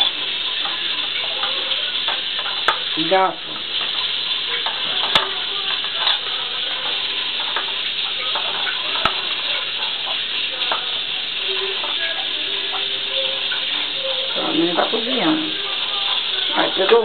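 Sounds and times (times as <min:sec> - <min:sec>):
utensils scraping in metal pot: 0:00.0 - 0:17.0.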